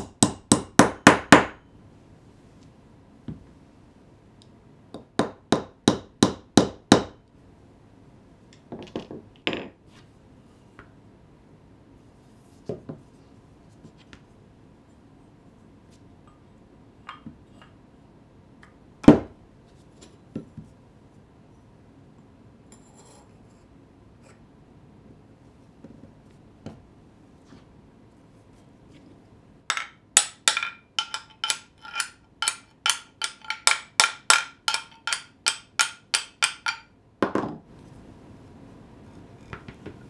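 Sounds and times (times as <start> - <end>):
wooden tool knocks and clinks: 8.6 - 9.8, 29.7 - 37.6
small hammer tapping wood: 29.7 - 36.8.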